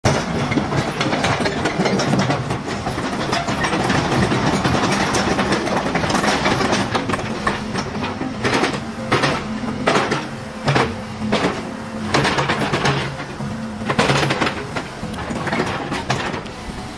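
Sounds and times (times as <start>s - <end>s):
excavator diesel engine running: 0.0s - 16.9s.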